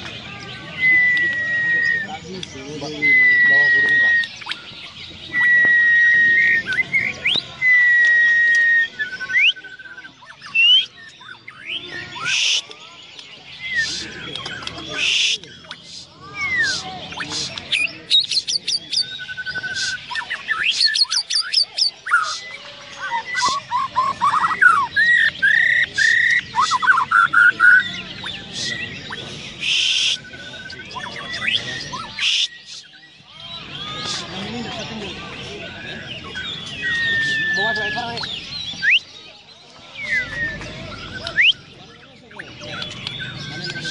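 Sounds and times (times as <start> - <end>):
songbirds chirping: 0.0 - 43.9
bird singing whistles and trills: 0.4 - 43.9
bird harsh hissing calls: 12.2 - 12.7, 13.8 - 14.2, 14.8 - 18.9, 19.6 - 24.6, 28.4 - 30.2, 32.0 - 33.0, 34.0 - 34.4.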